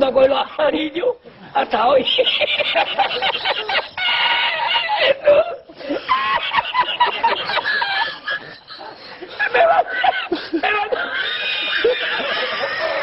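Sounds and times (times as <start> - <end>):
man laughing uncontrollably: 2.0 - 13.0.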